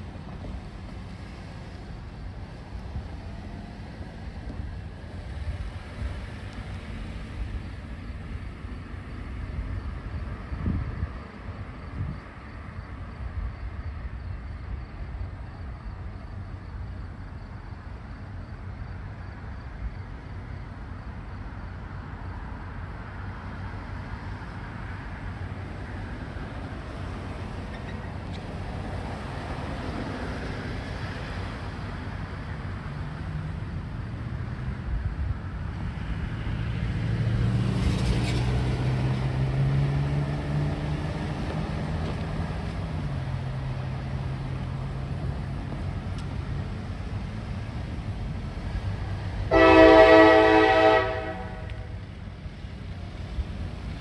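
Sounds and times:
locomotive diesel engines: 0:00.0 - 0:54.0
street traffic noise: 0:00.0 - 0:54.0.

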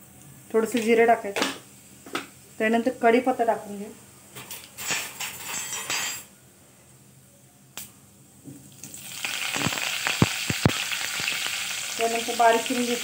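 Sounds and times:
oil sizzling with sharp pops: 0:07.8 - 0:13.0
leaves spluttering in hot oil: 0:08.7 - 0:13.0.

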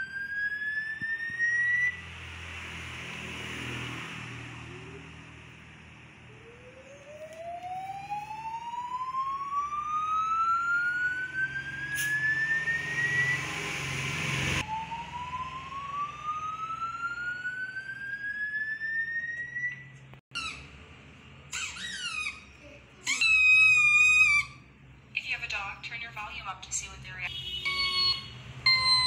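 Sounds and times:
siren rising in pitch: 0:00.0 - 0:20.0, 0:23.1 - 0:24.7, 0:27.7 - 0:29.0.

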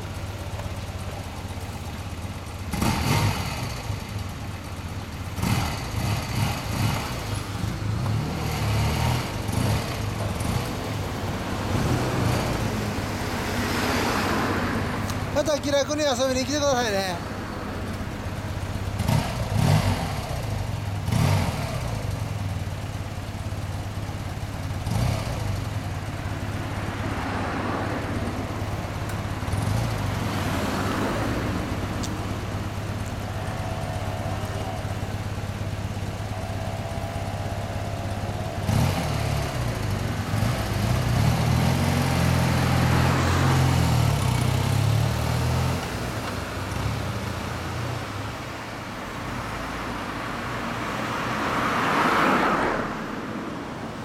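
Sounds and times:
motorcycle engine idling and revving: 0:00.0 - 0:54.0.

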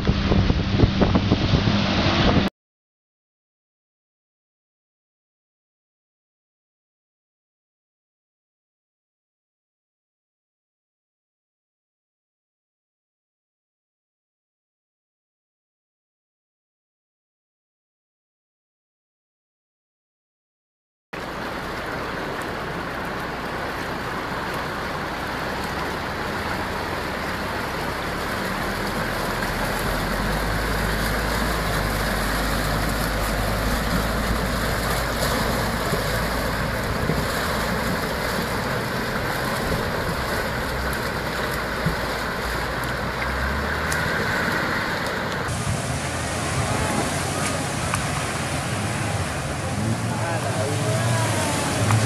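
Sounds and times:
water rushing and splashing: 0:00.0 - 0:02.5, 0:21.2 - 0:52.0
car engine running: 0:21.2 - 0:52.0.

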